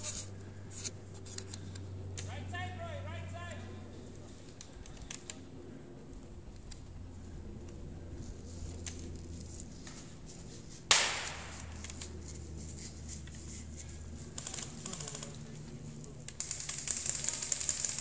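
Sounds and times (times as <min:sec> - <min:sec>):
sharp crack: 0:10.9 - 0:12.0.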